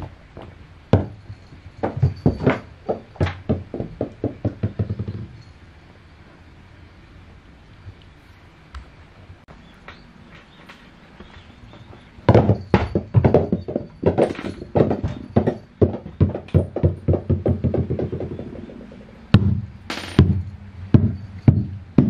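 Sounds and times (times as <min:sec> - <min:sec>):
rubber ball bouncing on wooden floor: 0:01.8 - 0:05.4, 0:12.3 - 0:20.4.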